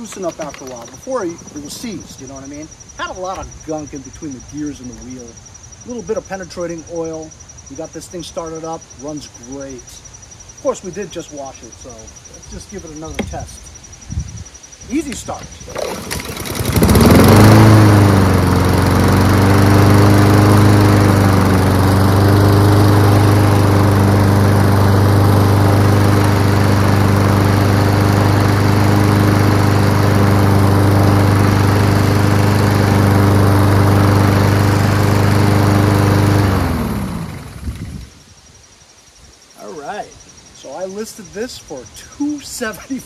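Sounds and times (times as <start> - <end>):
lawn mower engine running: 0.0 - 7.9, 12.9 - 13.5, 15.1 - 38.2.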